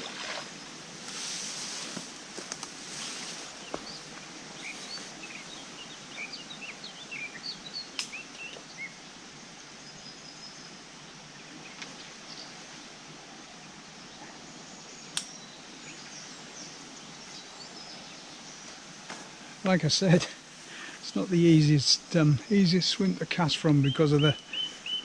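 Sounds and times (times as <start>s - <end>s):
steady outdoor hiss: 0.0s - 25.0s
small bird chirping: 23.6s - 25.0s.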